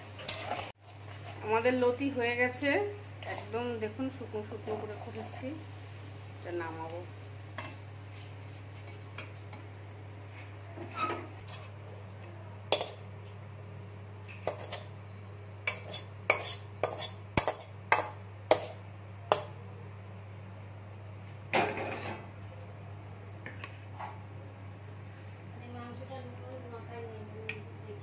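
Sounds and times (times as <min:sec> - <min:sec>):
metal spatula scraping a wok: 0:00.0 - 0:01.8, 0:03.2 - 0:05.6, 0:10.8 - 0:12.0, 0:12.7 - 0:13.0, 0:14.4 - 0:14.9, 0:15.6 - 0:19.5, 0:21.7 - 0:22.2.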